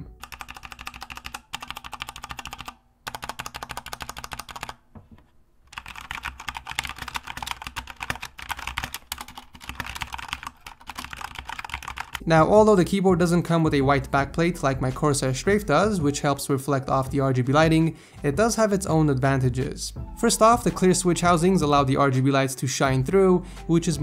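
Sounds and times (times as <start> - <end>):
mechanical keyboard typing: 0.0 - 4.8, 5.7 - 12.2.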